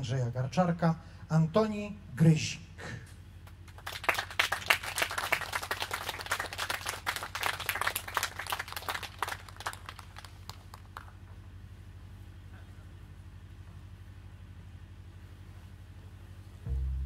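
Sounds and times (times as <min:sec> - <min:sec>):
audience applauding: 0:03.7 - 0:11.1.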